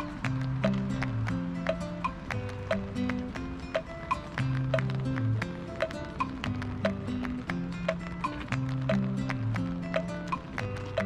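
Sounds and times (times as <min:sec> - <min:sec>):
percussion hits: 0:00.0 - 0:11.0.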